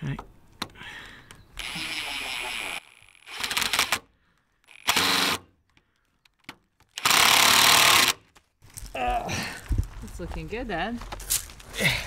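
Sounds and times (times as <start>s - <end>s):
impact driver driving screws: 1.6s - 5.5s, 6.8s - 8.2s.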